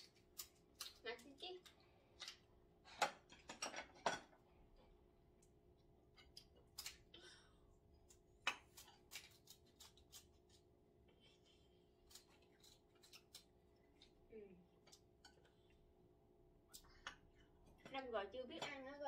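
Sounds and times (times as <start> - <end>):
scissors cracking crab shell: 0.0 - 2.4, 6.3 - 7.1, 8.1 - 10.6, 12.0 - 14.1.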